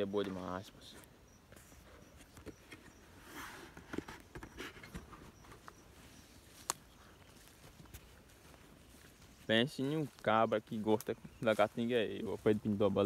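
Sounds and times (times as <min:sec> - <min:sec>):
footsteps through scrub: 0:01.6 - 0:13.0
twig snapping: 0:06.6 - 0:06.8.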